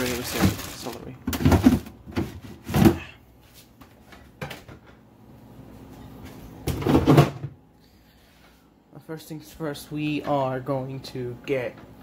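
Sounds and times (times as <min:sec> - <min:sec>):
refrigerator contents handling: 0:00.0 - 0:04.9.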